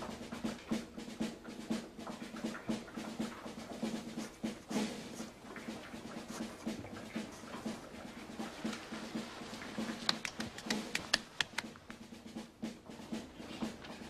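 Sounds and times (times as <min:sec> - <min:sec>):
soft percussion thumps: 0:00.0 - 0:14.0
sharp taps: 0:09.8 - 0:12.2.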